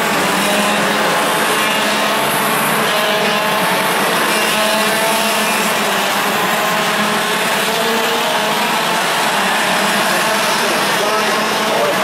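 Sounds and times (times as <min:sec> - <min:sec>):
kart engines running hard: 0:00.0 - 0:12.0.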